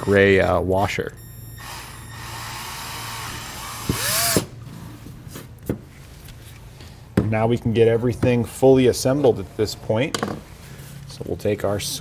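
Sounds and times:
cordless drill boring plastic: 0.0s - 0.3s, 1.6s - 4.5s.

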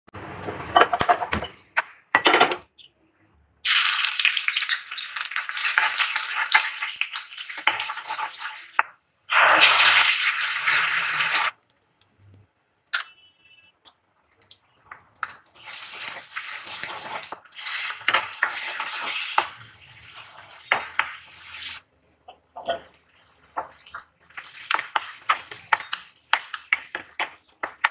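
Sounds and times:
hot oil sizzling and crackling: 3.6s - 11.6s, 15.2s - 21.9s, 23.6s - 27.9s
spoon stirring against pan: 14.3s - 27.9s.

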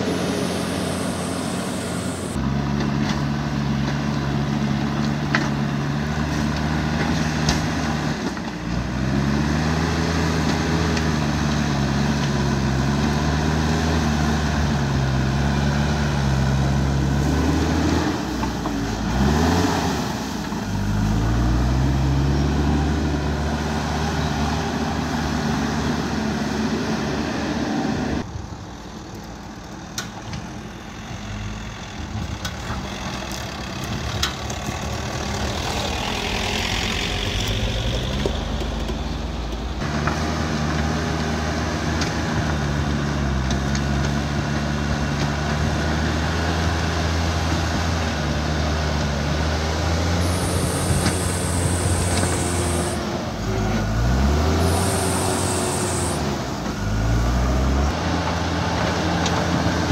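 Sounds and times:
quieter vehicle engine: 0.0s - 41.8s, 42.4s - 59.9s
diesel engine working under load: 0.0s - 59.9s.

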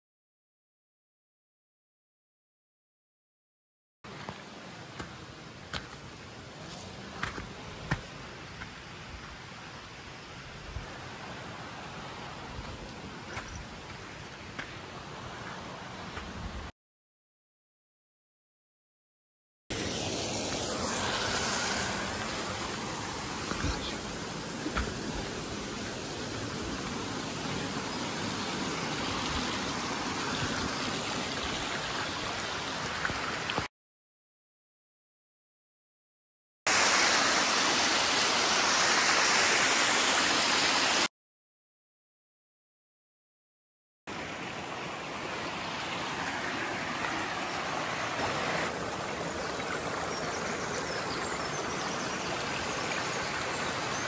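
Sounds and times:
stream rushing over rocks: 4.1s - 16.7s, 19.7s - 33.7s, 36.7s - 41.1s, 44.1s - 54.0s.

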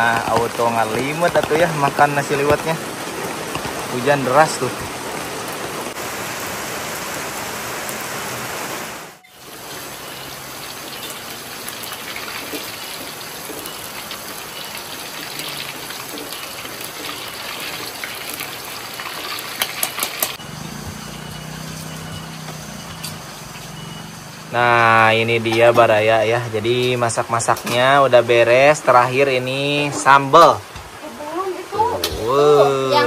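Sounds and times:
hot oil sizzling in a wok: 0.0s - 31.1s
heavy rain falling: 0.0s - 33.0s.

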